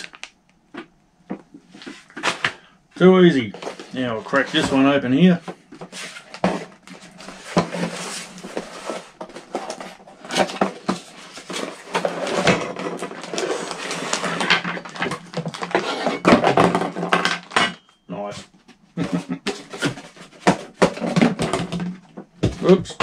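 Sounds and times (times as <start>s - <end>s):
packaging rustling and crackling: 0.0s - 0.4s, 3.4s - 17.6s.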